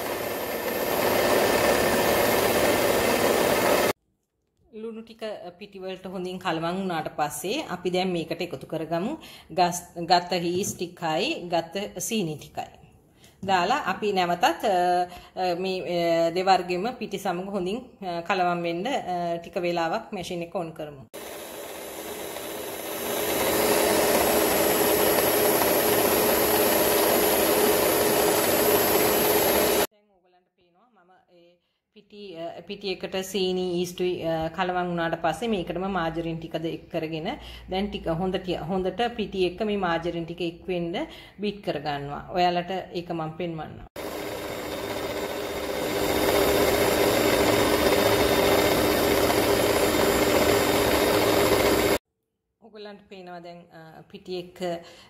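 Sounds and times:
stand mixer motor hum and whine: 0.0 - 3.9, 21.2 - 29.9, 44.0 - 52.0.

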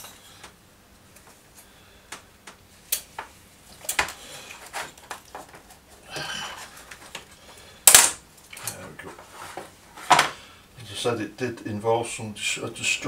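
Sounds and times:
scraping rustle: 4.1 - 7.6, 8.6 - 10.3.

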